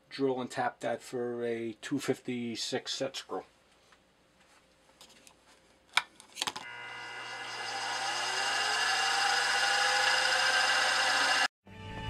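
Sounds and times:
drill press motor whine: 0:06.6 - 0:11.5.

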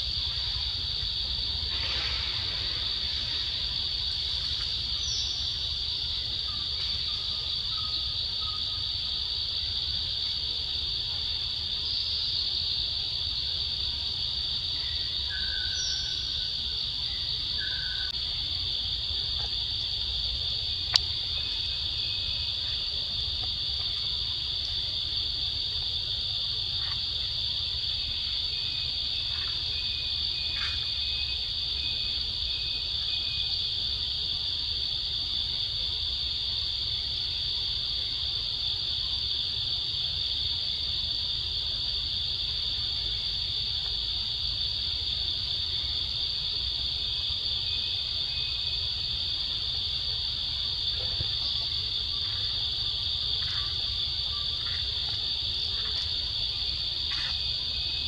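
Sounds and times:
insects chorus: 0:00.0 - 0:58.0.

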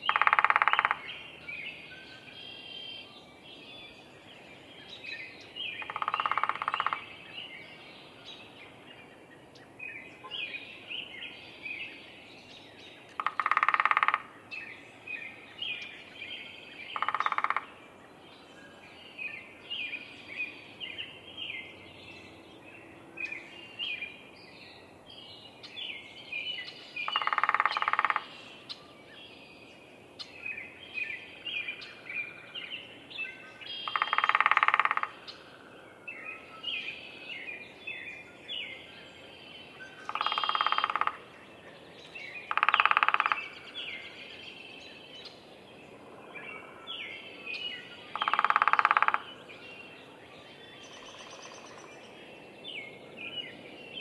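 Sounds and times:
birds chirping: 0:00.0 - 0:54.0
woodpecker drumming on wood: 0:00.1 - 0:01.1, 0:05.8 - 0:07.0, 0:13.1 - 0:14.3, 0:17.0 - 0:17.7, 0:27.1 - 0:28.3, 0:33.8 - 0:35.2, 0:40.1 - 0:41.2, 0:42.5 - 0:43.4, 0:48.1 - 0:49.2.

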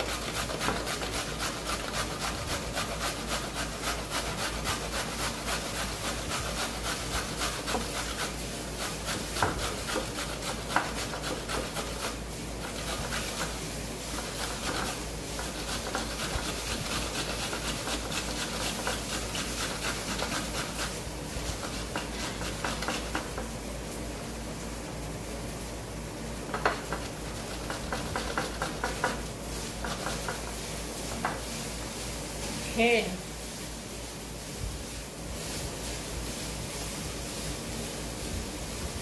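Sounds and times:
carrot grated on metal grater: 0:00.0 - 0:23.4, 0:26.5 - 0:30.5.

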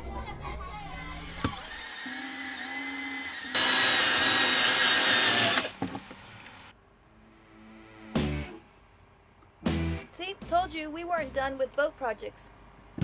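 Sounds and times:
power drill whining: 0:01.2 - 0:06.5.

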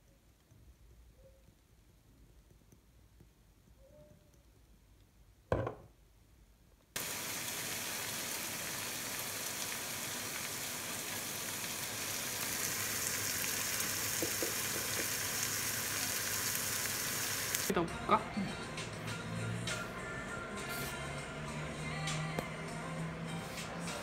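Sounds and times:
pork sizzling in a pan: 0:07.0 - 0:17.7.

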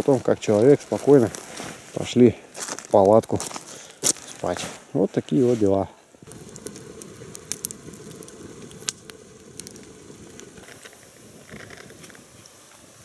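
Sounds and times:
low rush of burning: 0:05.4 - 0:13.0
campfire crackling and popping: 0:05.7 - 0:13.0.

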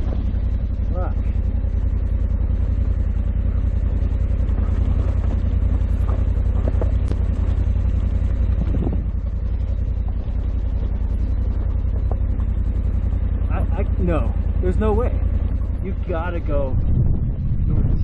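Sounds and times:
stones clicking under tyres: 0:00.0 - 0:13.8
motorcycle engine at low revs: 0:00.0 - 0:18.0.

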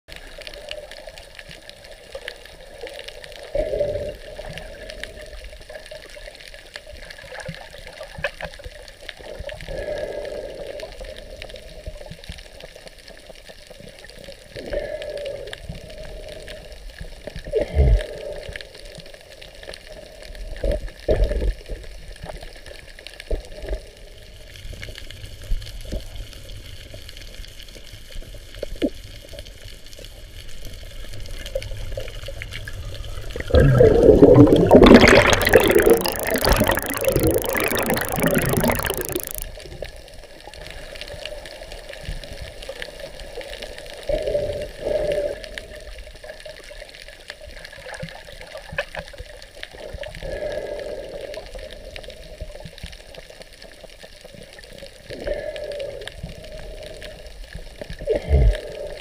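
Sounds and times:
underwater water wash: 0:00.1 - 0:59.0
rush of water: 0:30.8 - 0:39.4.

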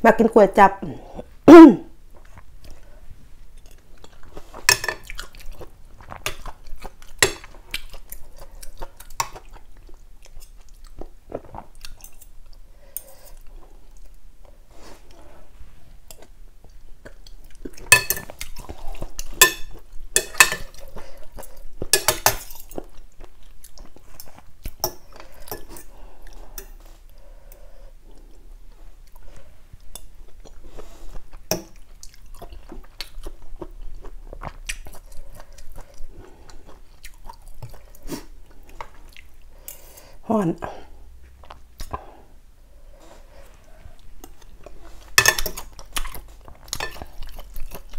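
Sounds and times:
chewing: 0:02.2 - 0:15.4, 0:16.0 - 0:40.1, 0:42.9 - 0:47.9
metal spoon clinking in bowl: 0:18.0 - 0:18.3.

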